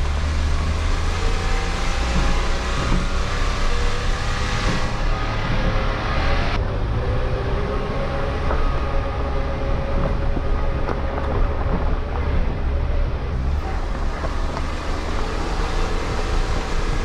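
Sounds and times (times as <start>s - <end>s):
car engine and road rumble: 0.0s - 17.0s
knocks from bumpy road: 1.9s - 6.2s.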